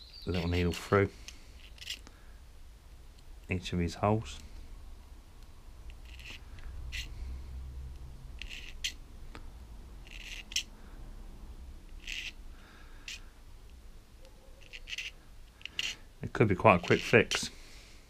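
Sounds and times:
low background rumble: 1.2s - 16.6s
wire needle scraping metal jet: 5.9s - 7.2s, 8.4s - 9.0s, 10.0s - 10.7s, 14.6s - 16.1s.

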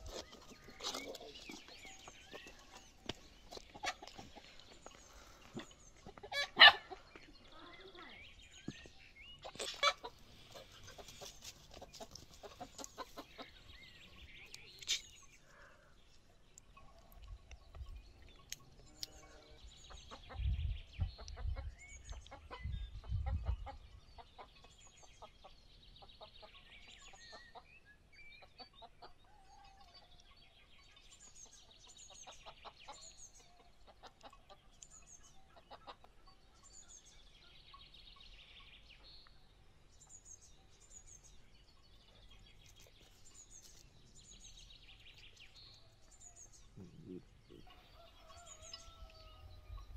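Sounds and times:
chickens clucking: 0.0s - 7.6s, 8.8s - 15.1s, 18.4s - 27.7s, 28.4s - 29.4s, 31.4s - 34.9s, 35.5s - 36.5s, 46.7s - 49.9s
small birds chirping: 0.0s - 49.9s.

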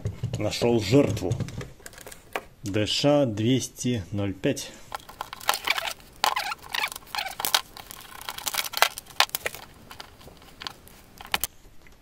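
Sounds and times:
handling rustling and crackling: 1.2s - 2.5s, 4.7s - 12.0s
sharp clicks and small knocks: 4.9s - 12.0s.

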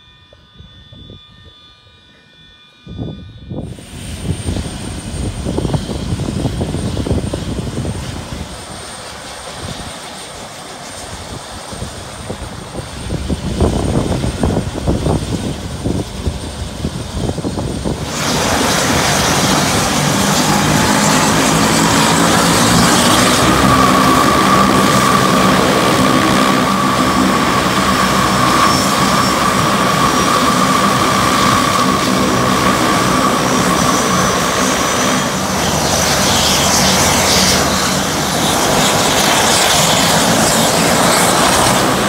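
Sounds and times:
turboprop engine rumble and roar: 0.0s - 42.0s.

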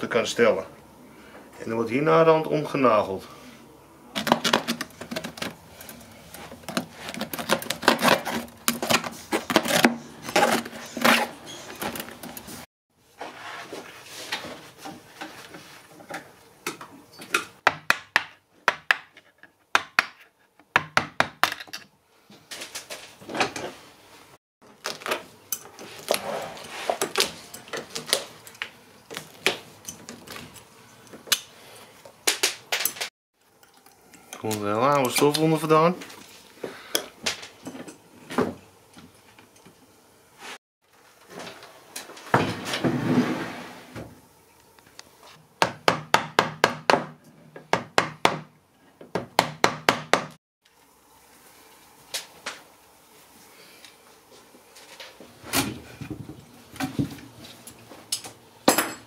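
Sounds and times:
hand tools tapping and knocking: 16.0s - 21.9s.

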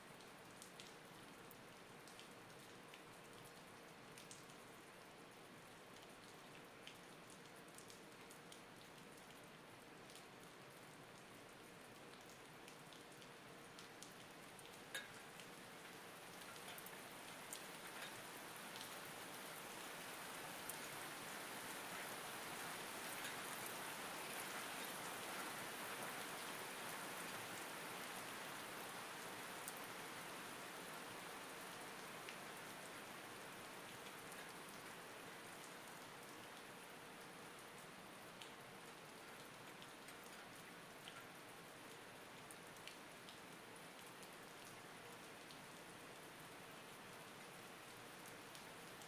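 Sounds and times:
steady rain falling: 0.0s - 49.0s
single raindrops ticking: 12.0s - 19.0s.

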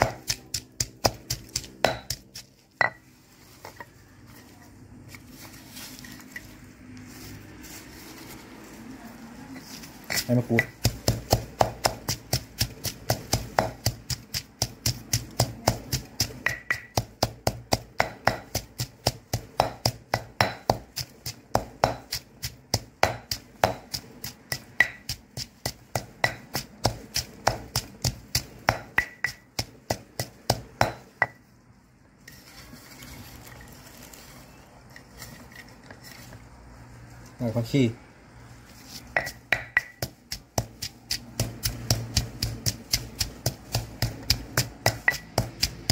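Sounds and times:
pestle pounding in stone mortar: 0.0s - 3.1s, 10.0s - 31.4s, 39.0s - 45.9s.

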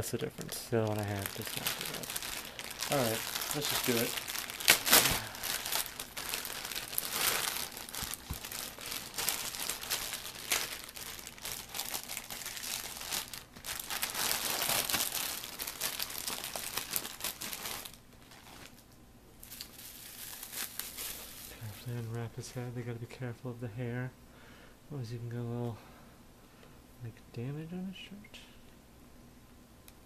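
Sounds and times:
plastic bags crinkling: 0.0s - 22.1s.

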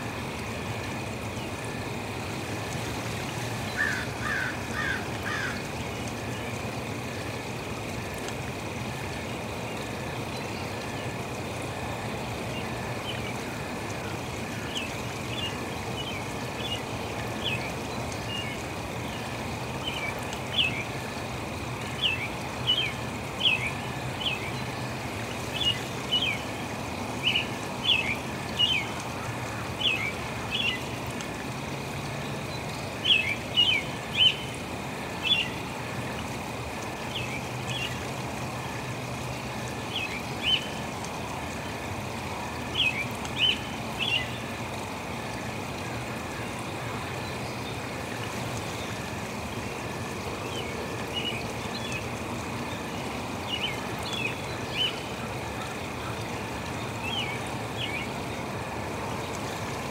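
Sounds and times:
running water hissing: 0.0s - 59.9s.

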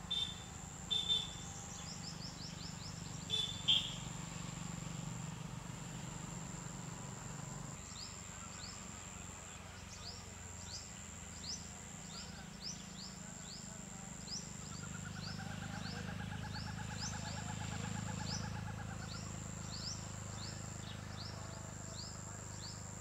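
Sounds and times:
rapid bird trill: 0.0s - 4.1s, 12.6s - 21.4s
high insect drone: 0.0s - 23.0s.

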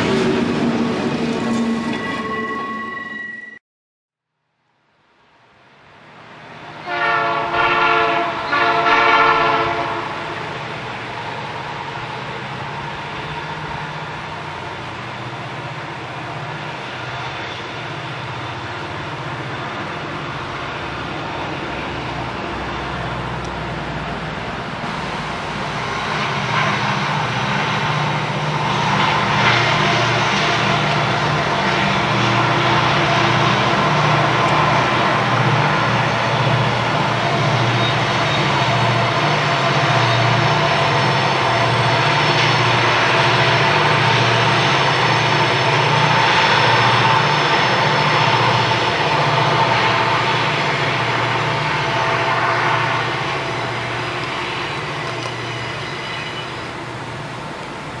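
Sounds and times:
diesel engines roaring: 6.2s - 58.0s
locomotive horn: 6.8s - 10.6s, 24.8s - 36.6s, 46.2s - 56.9s.

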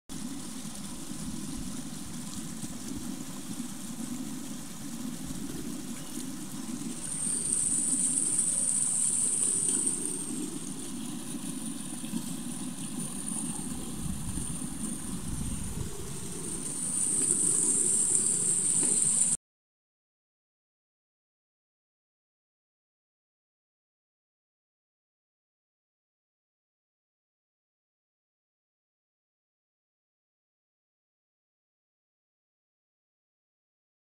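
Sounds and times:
stream running over stones: 0.1s - 19.4s.

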